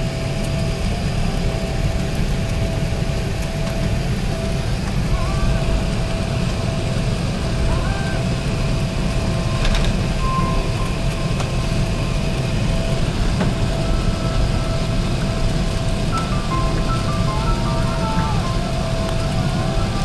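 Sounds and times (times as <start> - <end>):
aircraft cabin rumble: 0.0 - 20.0
steady hum: 0.0 - 20.0.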